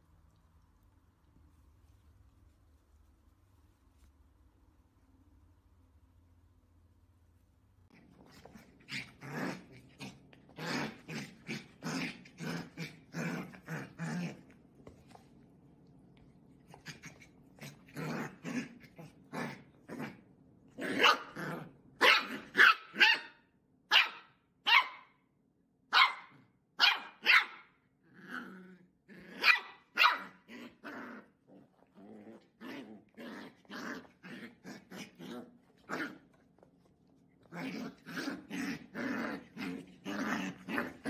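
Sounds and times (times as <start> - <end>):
puppy barking and growling: 7.9 - 14.6, 16.6 - 25.2, 25.9 - 36.7, 37.3 - 41.0.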